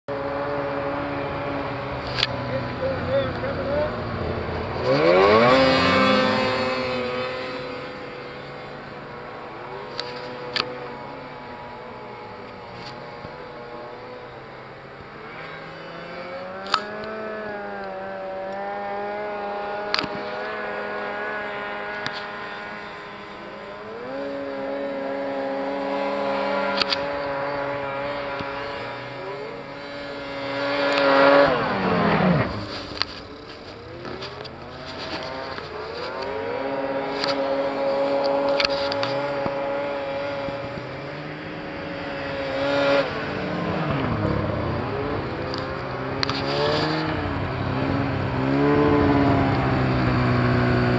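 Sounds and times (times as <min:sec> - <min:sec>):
snowmobile engines revving: 0:00.1 - 0:50.9
snowmobile passing by: 0:00.1 - 0:50.9.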